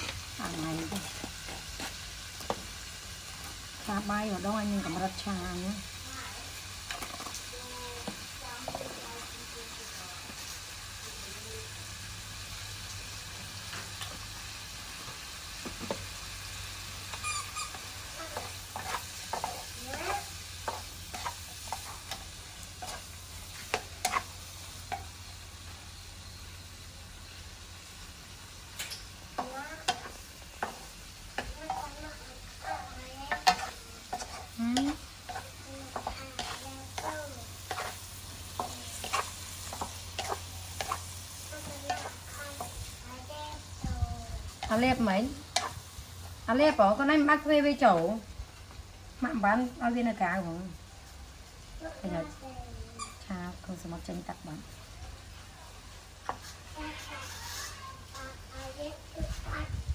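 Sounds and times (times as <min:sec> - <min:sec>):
spatula scraping and tapping pan: 0:00.0 - 0:05.3, 0:06.8 - 0:09.2, 0:15.0 - 0:16.2, 0:17.1 - 0:25.8, 0:28.7 - 0:42.9, 0:44.5 - 0:45.9, 0:56.2 - 0:58.7
food sizzling in a wok: 0:00.0 - 0:59.9.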